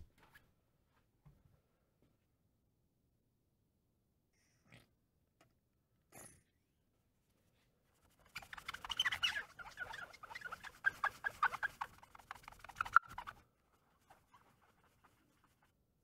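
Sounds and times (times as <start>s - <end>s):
sponge scrubbing lens with squeaks: 8.0s - 16.0s.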